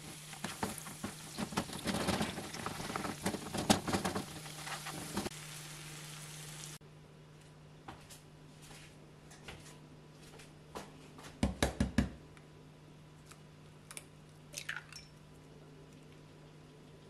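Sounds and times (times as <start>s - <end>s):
eggshell crackling: 0.0s - 6.8s.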